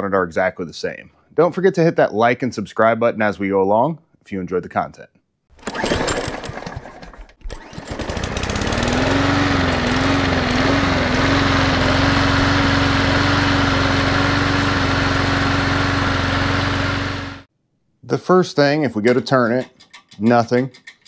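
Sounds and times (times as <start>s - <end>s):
lawn mower engine starting up: 5.5s - 17.5s.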